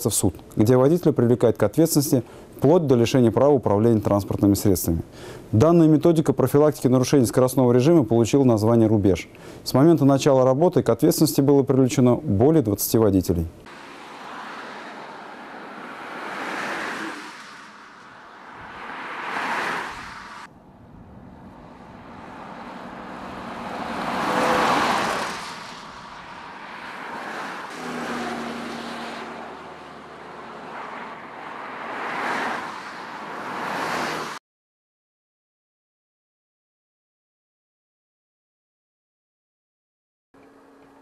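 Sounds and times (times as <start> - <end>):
cars passing at speed: 13.6 - 34.4
truck passing: 13.6 - 34.4.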